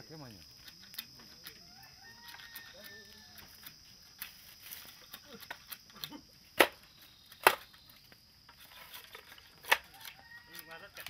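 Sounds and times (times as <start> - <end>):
loud sharp pops: 6.0 - 7.7.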